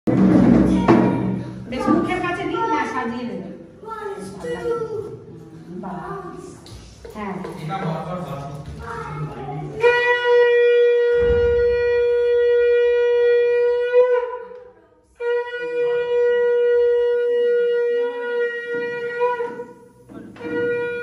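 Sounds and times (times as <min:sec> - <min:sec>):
conch shell blasts: 0:09.8 - 0:14.5.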